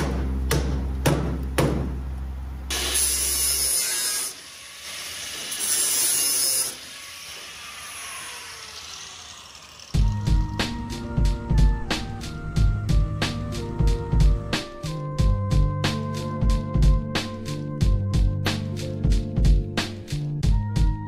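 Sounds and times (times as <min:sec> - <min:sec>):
music with a steady beat: 0:10.0 - 0:21.0.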